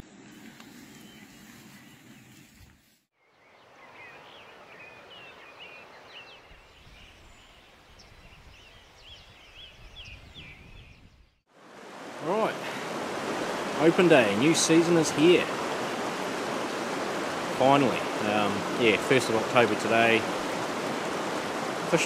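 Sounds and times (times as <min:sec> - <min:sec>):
birds twittering and chirping: 0:00.7 - 0:02.6, 0:03.2 - 0:11.4
steady background hiss: 0:11.6 - 0:22.0.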